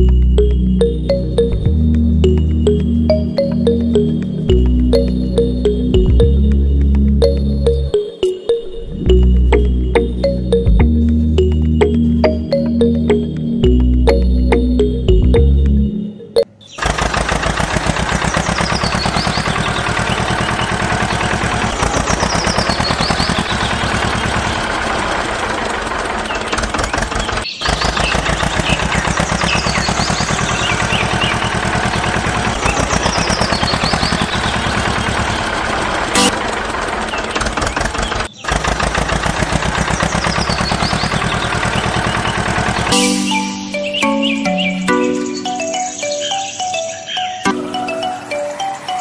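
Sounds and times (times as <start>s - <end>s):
diesel tractor engine chugging: 0.0s - 8.1s, 16.8s - 46.4s.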